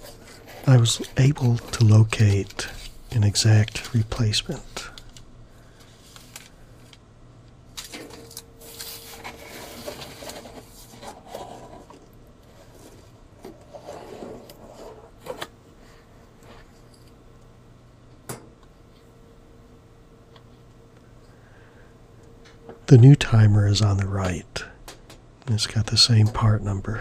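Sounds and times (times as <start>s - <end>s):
cardboard and paper rustling: 0.0s - 4.9s, 7.8s - 15.5s.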